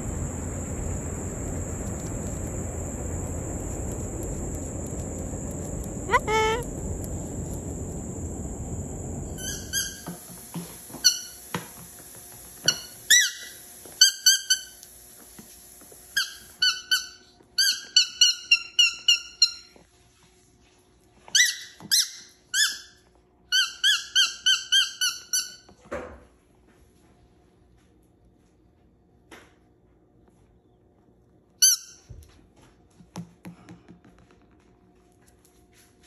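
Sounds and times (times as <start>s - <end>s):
cockatoo squeaky chirps: 6.1s - 6.6s.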